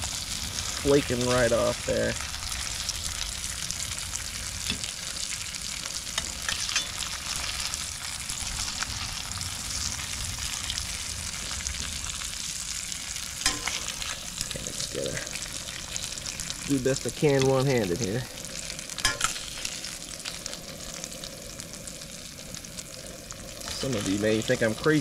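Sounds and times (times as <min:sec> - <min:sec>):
fish frying in oil: 0:00.0 - 0:25.0
metal spatula scraping pan: 0:06.2 - 0:07.1, 0:13.5 - 0:13.9.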